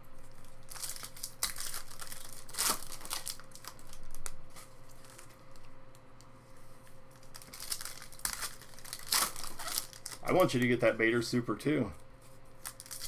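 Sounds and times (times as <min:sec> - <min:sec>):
foil wrapper crinkling and tearing: 0:00.2 - 0:05.6, 0:07.1 - 0:10.9, 0:12.6 - 0:13.0
cards being shuffled: 0:12.2 - 0:13.0.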